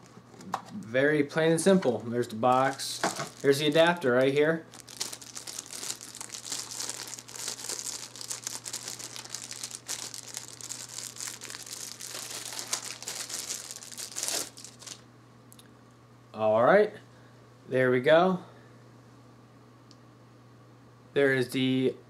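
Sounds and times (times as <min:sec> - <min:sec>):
low electrical hum: 0:00.0 - 0:22.0
plastic bag crinkling: 0:02.0 - 0:15.0.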